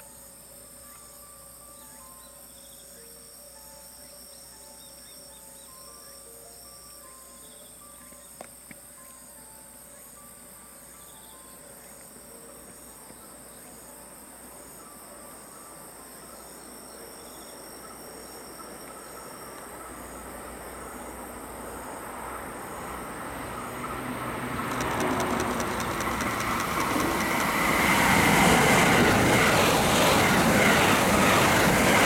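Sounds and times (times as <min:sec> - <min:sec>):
insects trilling: 0:00.0 - 0:32.0
train wheels rushing on rails: 0:22.8 - 0:32.0
sharp clicks: 0:24.6 - 0:27.8.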